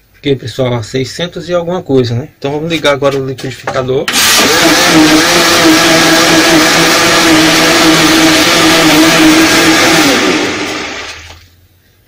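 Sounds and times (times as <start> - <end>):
electric blender motor running: 4.1 - 11.4.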